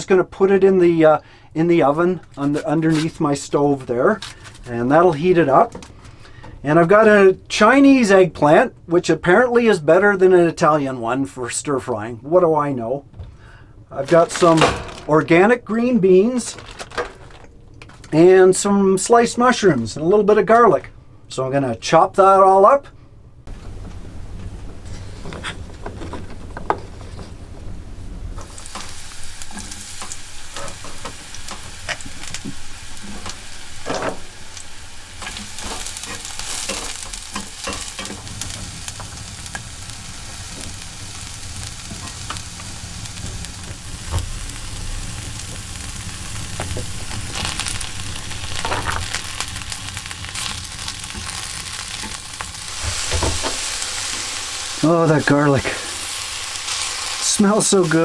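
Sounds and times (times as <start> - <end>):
vegetables sizzling in a skillet: 28.3 - 58.0.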